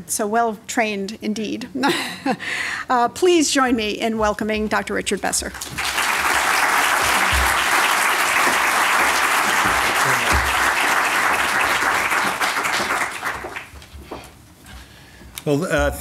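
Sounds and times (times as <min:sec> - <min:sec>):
audience applauding: 0:05.6 - 0:13.8.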